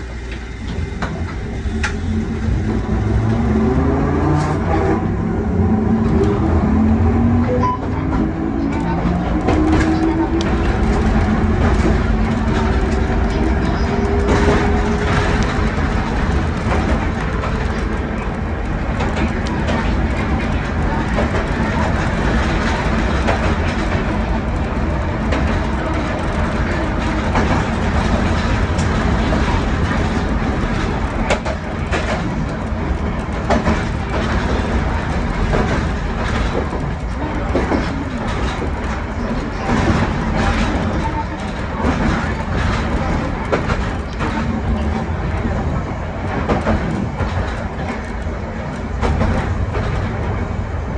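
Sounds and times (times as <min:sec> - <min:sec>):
tram wheels rumbling on rail: 0:00.0 - 0:50.9.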